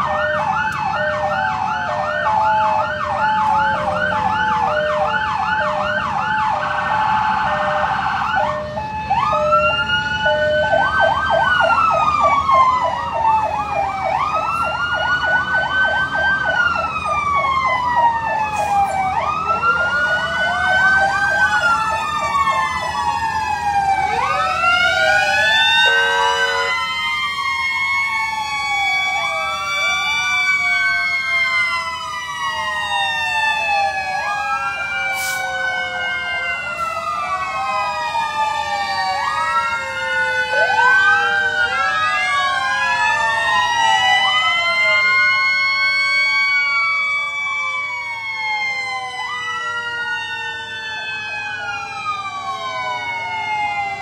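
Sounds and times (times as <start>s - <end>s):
fire engine sirens wailing: 0.0s - 54.0s
short horn blast: 25.9s - 26.7s.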